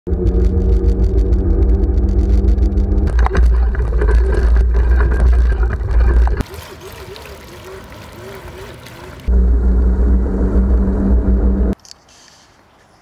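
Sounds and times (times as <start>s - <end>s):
electric scooter hum: 0.1s - 5.8s, 8.0s - 11.8s
tyres splashing through puddle: 3.1s - 9.3s.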